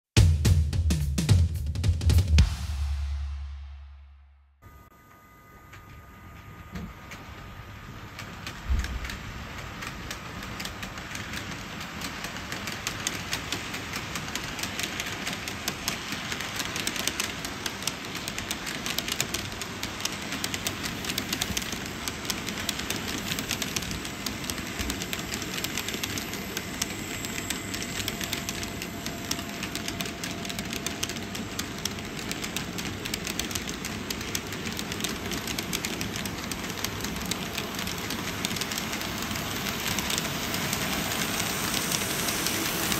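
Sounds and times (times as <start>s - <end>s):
model train wheels clicking on rails: 6.7s - 42.9s.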